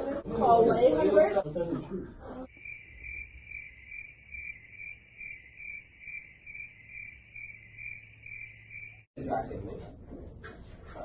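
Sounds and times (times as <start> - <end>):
crickets chirping: 2.5 - 9.1.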